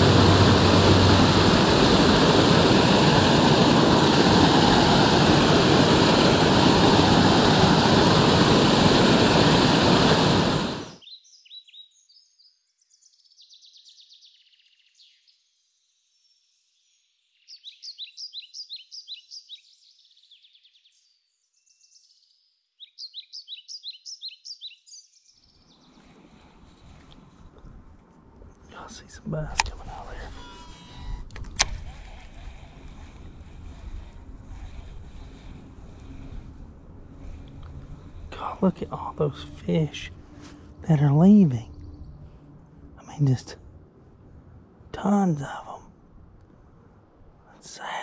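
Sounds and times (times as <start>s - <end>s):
faint low rumble: 0.0s - 11.0s, 25.8s - 47.7s
waterfall rushing into pool: 0.0s - 11.0s
songbirds singing: 10.9s - 27.8s, 28.4s - 46.5s.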